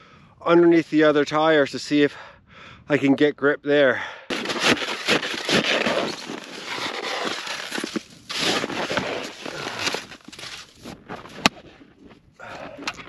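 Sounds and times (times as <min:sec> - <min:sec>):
snow shovel scraping snow: 0:04.3 - 0:11.6.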